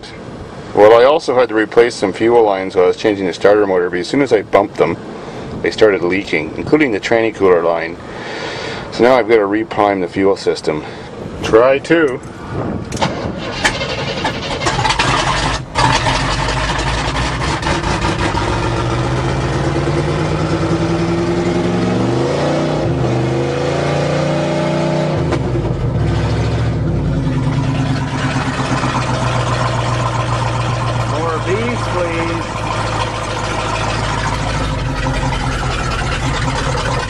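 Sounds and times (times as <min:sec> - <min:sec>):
truck engine starting and revving: 0:12.3 - 0:37.0.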